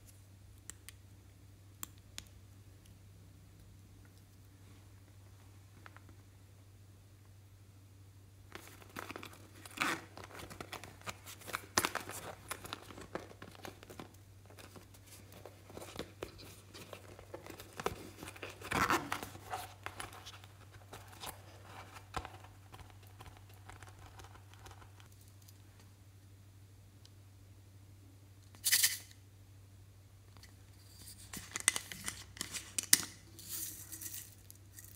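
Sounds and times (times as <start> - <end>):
sequins crinkling and rustling: 8.5 - 25.9, 30.4 - 34.9.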